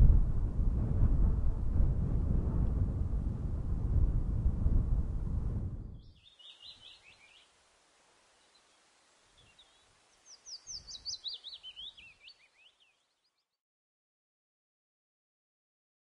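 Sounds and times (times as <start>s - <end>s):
low rumble: 0.0s - 6.0s
songbird chirping: 6.0s - 13.6s.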